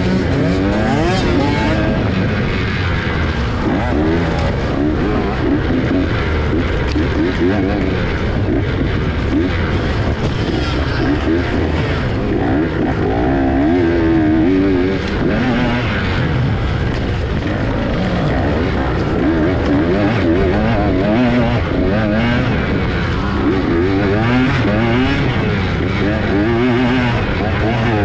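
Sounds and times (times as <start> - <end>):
dirt bike engine revving: 0.0 - 28.0.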